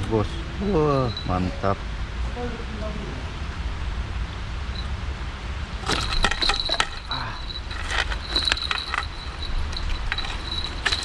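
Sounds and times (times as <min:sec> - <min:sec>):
fishing tackle clinking: 0:05.8 - 0:11.0.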